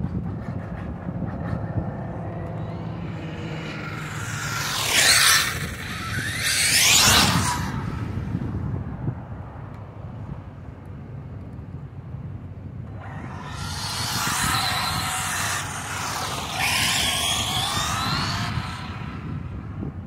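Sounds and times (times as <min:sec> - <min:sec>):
rc car motor whine: 0:01.3 - 0:08.6, 0:12.9 - 0:20.0.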